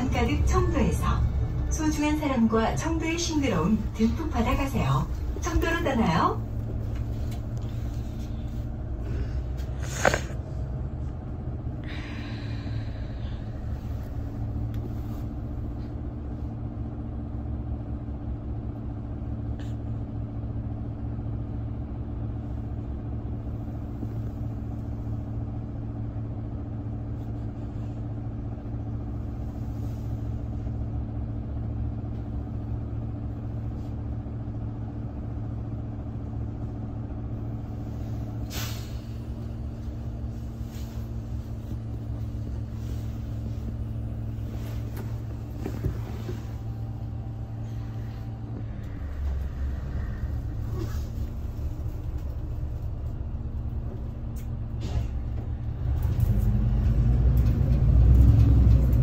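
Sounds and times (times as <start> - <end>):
bus engine idling: 0.0 - 59.0
brief hiss: 38.4 - 39.2.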